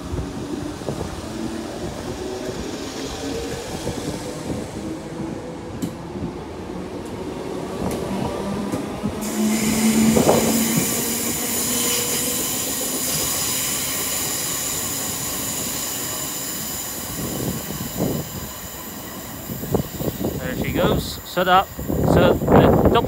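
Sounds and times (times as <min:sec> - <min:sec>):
passenger train moving: 0:00.0 - 0:23.0
high-pitched squeal: 0:09.2 - 0:20.6.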